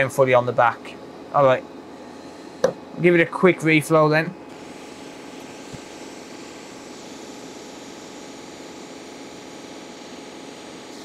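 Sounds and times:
hot air station hissing: 4.5s - 11.0s.

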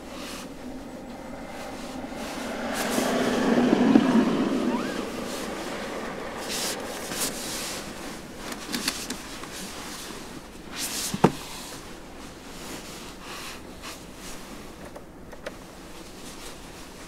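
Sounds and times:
handling rustles and clicks: 6.5s - 11.4s.

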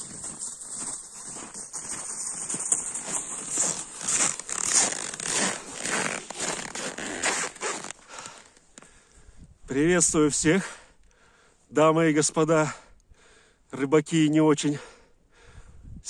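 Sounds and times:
footsteps crunching in snow: 0.0s - 9.0s
bag dragged over snow: 1.4s - 8.4s.

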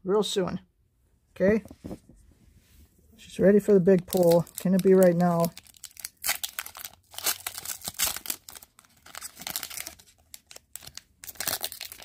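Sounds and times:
card pack wrapper tearing and crinkling: 3.9s - 12.0s.

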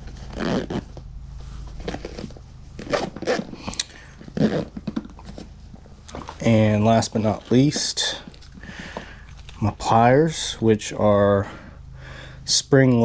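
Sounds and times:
zippers pulled shut: 0.1s - 1.0s, 1.8s - 4.9s.

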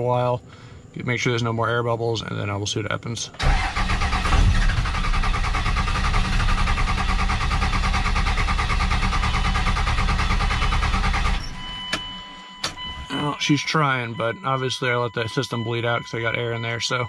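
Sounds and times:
diesel engine starter cranking: 3.4s - 12.9s.

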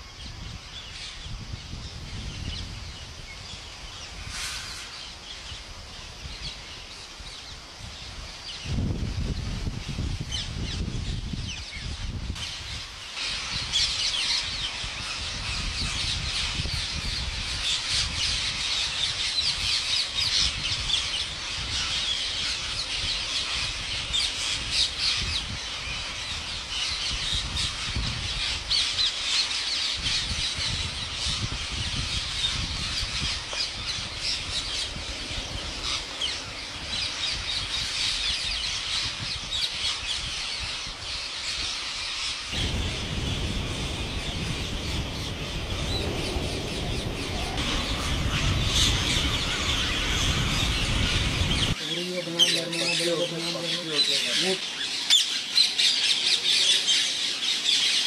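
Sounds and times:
parakeets squawking and screeching: 12.4s - 58.0s.

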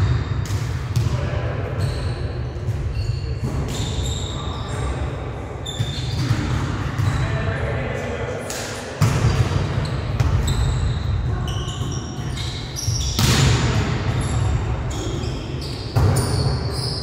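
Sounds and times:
sneakers squeaking on floor: 0.0s - 7.3s, 9.2s - 17.0s
volleyball smacks echoing: 13.2s - 14.2s.

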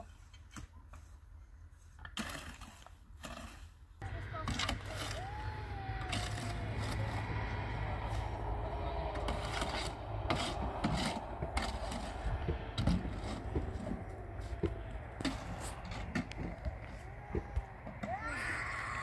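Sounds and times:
steady scraping noise: 6.0s - 17.1s.

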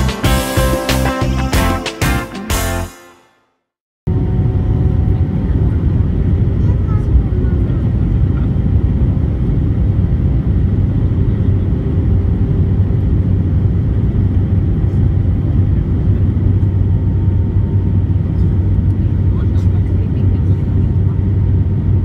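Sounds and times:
airplane cabin engine rumble: 4.1s - 22.0s.

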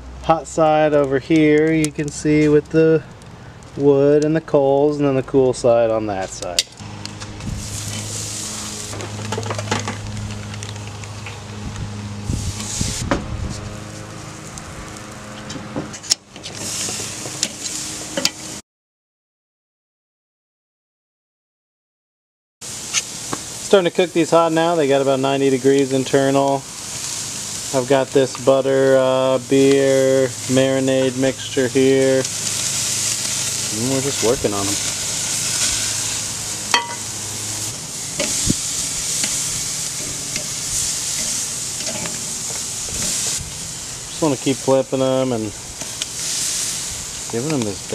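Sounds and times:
steak sizzling: 6.4s - 15.4s, 16.0s - 18.6s, 22.6s - 47.9s
tongs clicking on grill grate: 40.0s - 43.2s.

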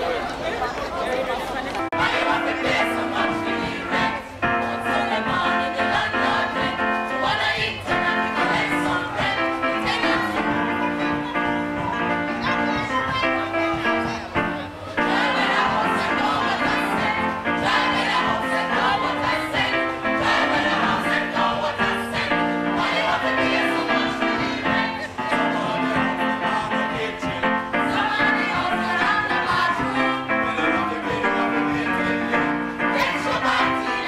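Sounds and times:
choir singing with music: 1.8s - 34.0s.

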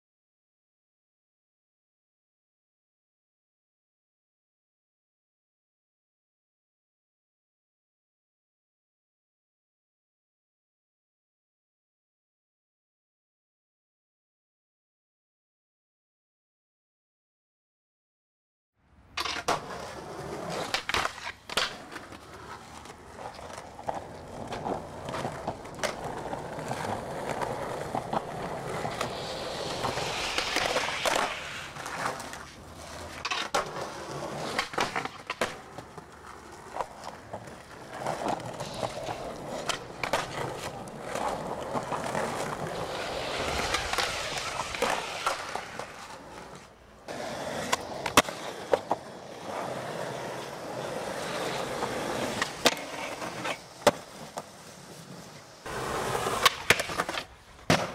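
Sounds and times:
skateboard wheels rolling on pavement: 18.8s - 57.9s
skateboard clacks: 19.1s - 57.9s
skateboard scraping concrete ledge: 19.2s - 57.9s.

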